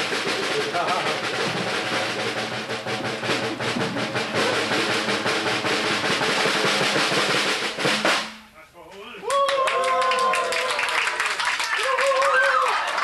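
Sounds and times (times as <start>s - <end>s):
drum roll: 0.0s - 8.7s.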